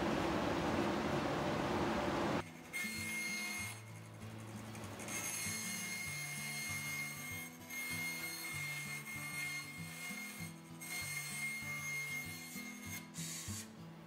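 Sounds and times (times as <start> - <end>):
bandsaw cutting plywood: 4.8 - 13.7.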